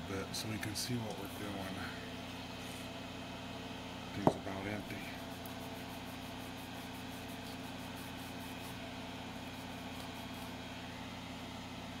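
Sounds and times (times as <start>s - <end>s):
low equipment hum: 0.0s - 12.0s
cloth scrubbing circuit board: 5.2s - 8.8s.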